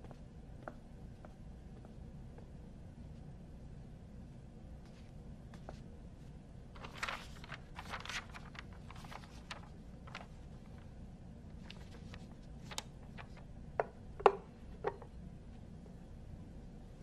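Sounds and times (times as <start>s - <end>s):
paper rustling: 6.8s - 10.9s, 11.6s - 13.5s.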